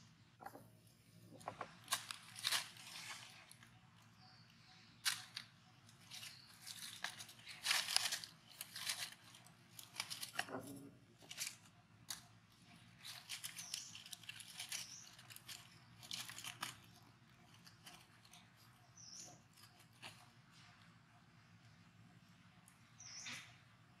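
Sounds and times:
dry leaves rustling and crackling: 1.6s - 3.7s, 5.0s - 20.2s.

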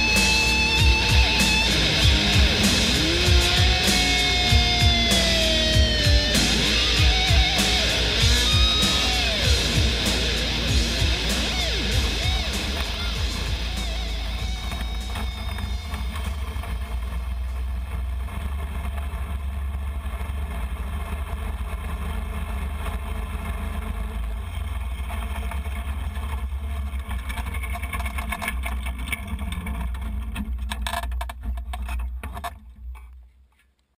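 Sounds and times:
go-kart engine rumbling: 0.0s - 33.7s
knocks and rustles: 27.0s - 33.8s.

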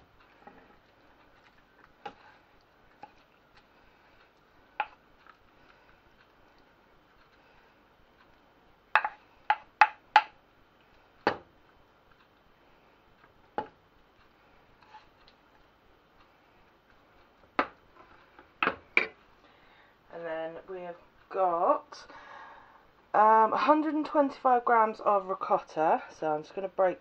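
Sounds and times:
wooden spoon clacking on dishes: 8.9s - 10.3s.

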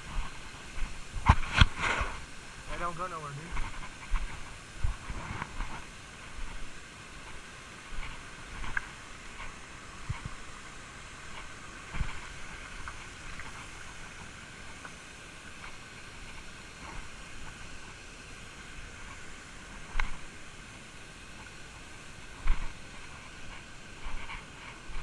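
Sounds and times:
creek water running over rocks: 0.0s - 25.0s.

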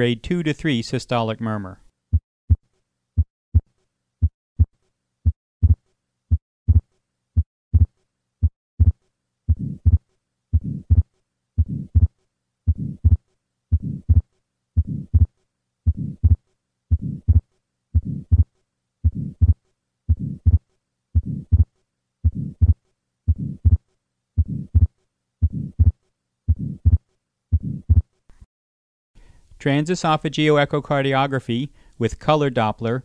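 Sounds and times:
heartbeat: 2.1s - 2.6s, 3.2s - 15.3s, 15.9s - 20.6s, 21.2s - 23.8s, 24.4s - 28.1s
soft heart murmur: 4.2s - 7.9s, 8.8s - 15.3s, 15.9s - 20.6s, 21.2s - 23.8s, 24.4s - 28.1s.

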